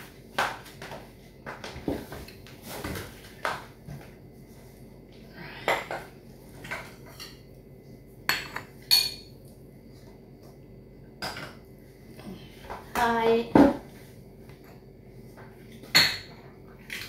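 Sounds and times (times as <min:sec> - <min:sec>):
dishes and cutlery clinking: 0:08.3 - 0:09.4.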